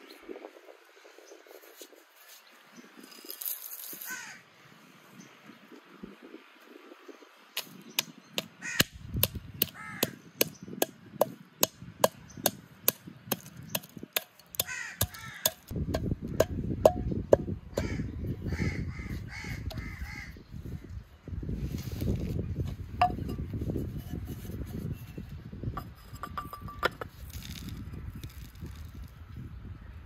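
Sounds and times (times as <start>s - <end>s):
pestle pounding spices: 11.2s - 17.9s
grinding and scraping in bowl: 23.0s - 28.8s.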